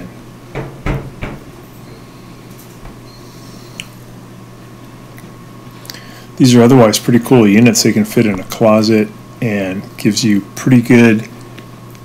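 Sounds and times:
steady low hum: 0.0 - 12.0
panel knocking and clicking: 0.6 - 1.5.

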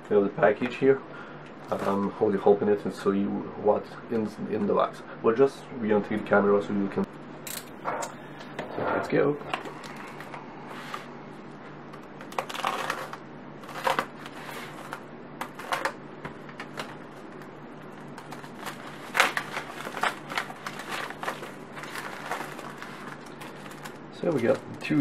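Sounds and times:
plastic envelope crinkling: 12.2 - 25.0.

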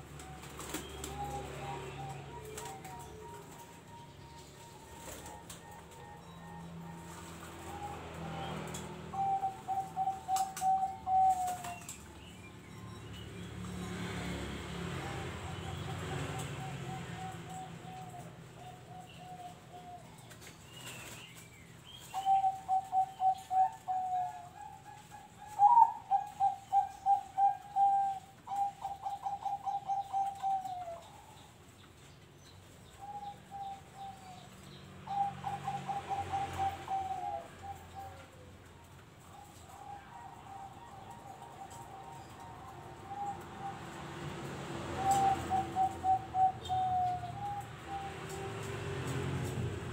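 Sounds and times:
doves cooing: 0.0 - 12.6, 21.9 - 32.0, 32.9 - 49.9.

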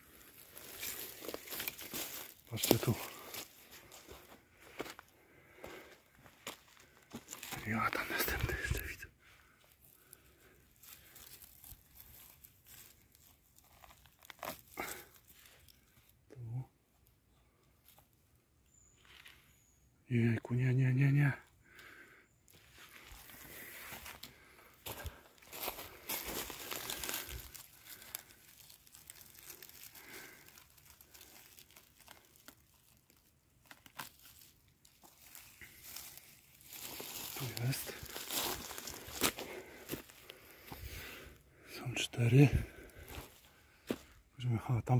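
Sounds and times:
footsteps through forest litter: 0.0 - 16.2, 17.3 - 19.8, 21.7 - 44.4
sharp crackles: 24.4 - 41.1.

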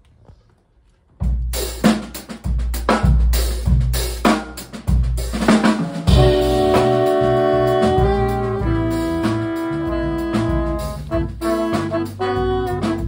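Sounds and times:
drum kit groove: 1.2 - 13.0
deep bass notes: 6.1 - 13.0
horn section held chords: 6.1 - 13.0.

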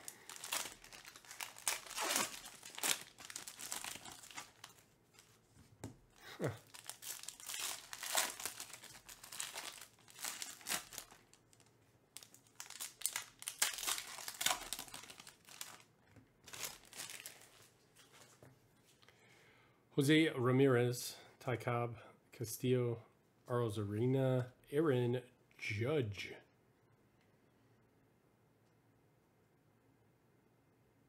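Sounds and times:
foil wrapper tearing and crinkling: 0.0 - 5.3, 6.5 - 17.6.

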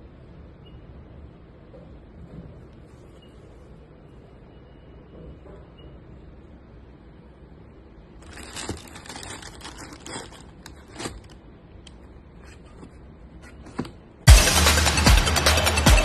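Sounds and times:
cardboard box handled: 8.2 - 11.4
tissue paper crinkling: 8.2 - 11.4
loud electronic music: 14.3 - 16.0.

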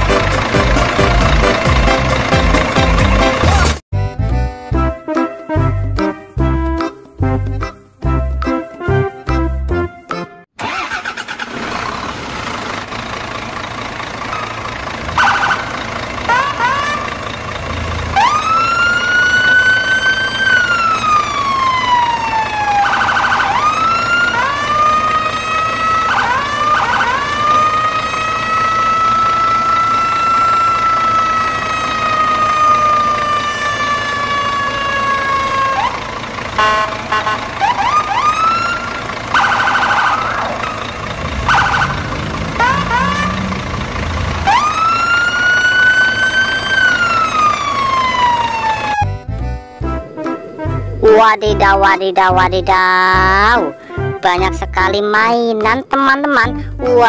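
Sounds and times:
low engine rumble: 0.0 - 5.0, 10.7 - 55.0
short rising siren yelps: 15.1 - 17.1, 18.1 - 36.0, 37.4 - 49.1
siren wailing: 15.1 - 17.2, 18.0 - 49.2.

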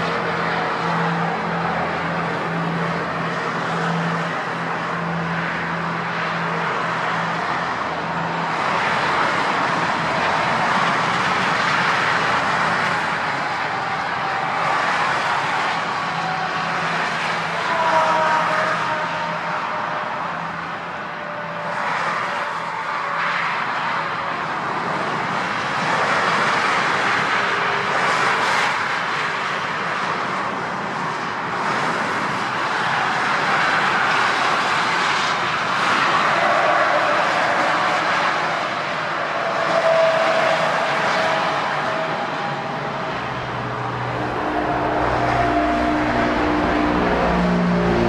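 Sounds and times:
turboprop aircraft landing: 0.0 - 17.3, 39.8 - 48.0.

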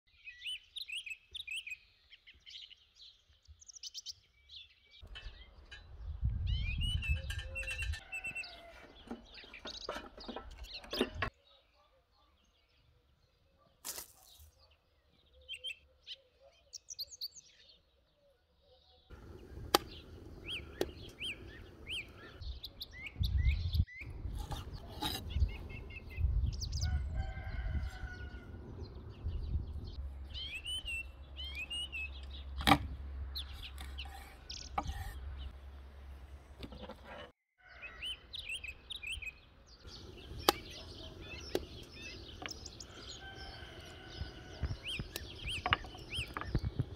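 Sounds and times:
birds chirping: 0.1 - 46.9.

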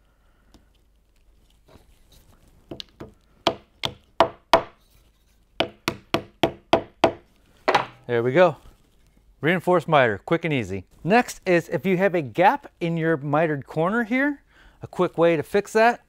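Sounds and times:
wooden mallet striking wood: 2.7 - 4.8, 5.6 - 8.1.

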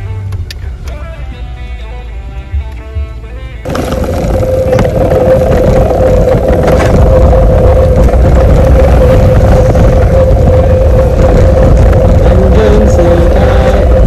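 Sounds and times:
steady mid-pitched hum: 2.4 - 14.0
wind rushing over microphone: 3.7 - 14.0.

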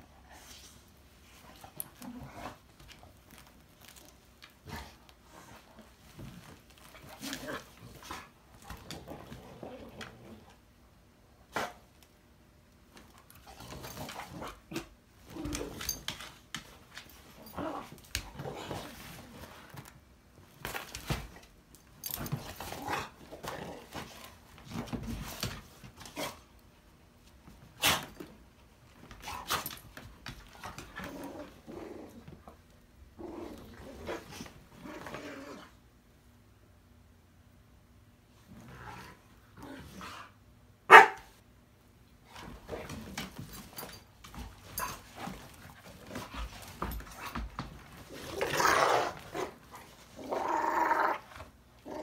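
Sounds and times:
dogs barking: 40.9 - 41.3
dogs growling: 48.0 - 52.0.

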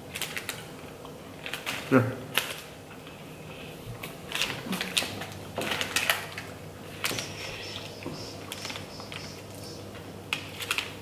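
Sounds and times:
plastic wrappers crinkling: 1.4 - 3.0, 4.0 - 11.0.

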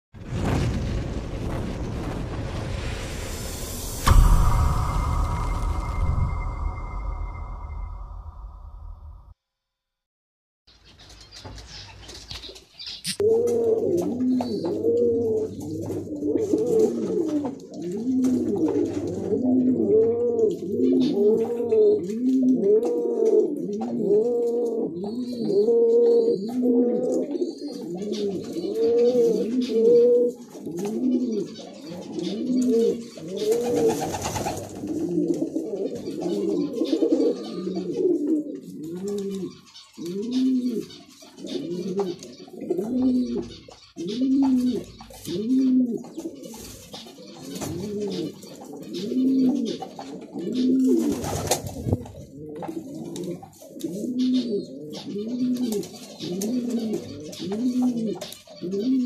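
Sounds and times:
burst of noise: 0.2 - 9.3
pigeon cooing: 13.2 - 34.1, 34.8 - 46.6, 47.3 - 59.0.

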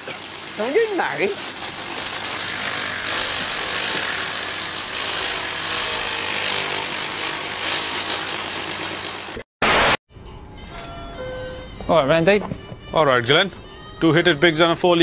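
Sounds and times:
paper shredder grinding: 0.0 - 9.4.

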